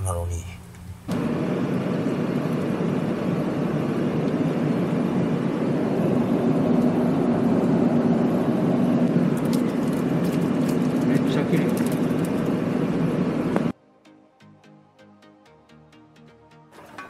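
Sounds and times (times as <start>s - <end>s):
vehicle road and engine noise: 1.1s - 13.7s.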